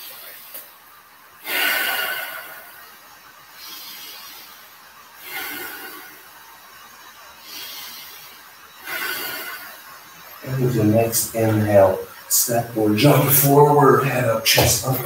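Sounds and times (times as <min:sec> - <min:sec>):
person breathing in and out: 0:01.4 - 0:06.6, 0:07.3 - 0:10.3.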